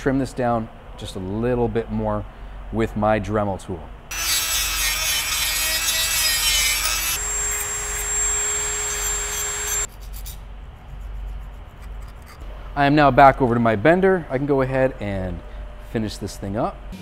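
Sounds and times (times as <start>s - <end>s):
rotary tool grinding metal: 4.1s - 10.3s
hand file on metal: 4.1s - 12.4s.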